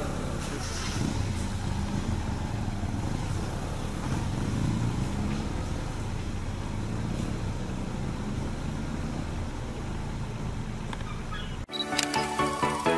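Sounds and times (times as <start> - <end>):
vehicle engine idling: 0.0 - 11.7.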